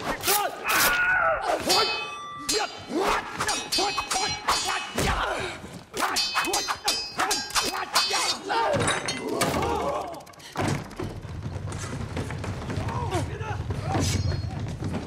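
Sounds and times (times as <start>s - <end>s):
sword blades clashing: 0.0s - 5.4s, 6.0s - 10.0s.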